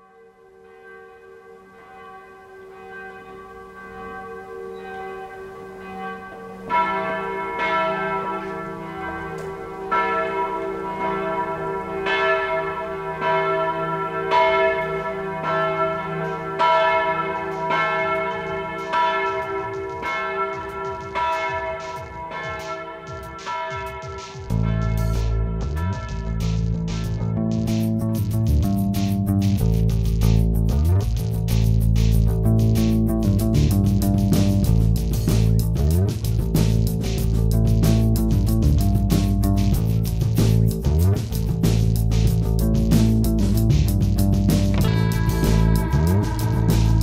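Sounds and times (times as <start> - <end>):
church bells ringing: 0.0 - 28.1, 44.8 - 47.0.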